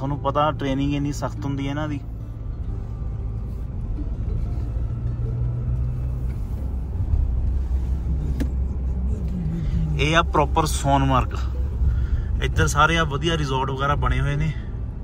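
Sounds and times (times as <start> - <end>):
car engine and tyres rumbling: 0.0 - 15.0.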